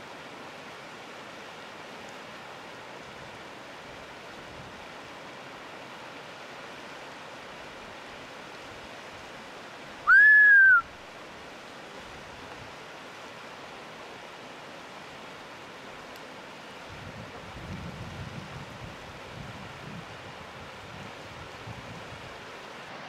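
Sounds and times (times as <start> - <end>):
mountain stream rushing: 0.0 - 23.0
marmot alarm whistle: 10.1 - 10.8.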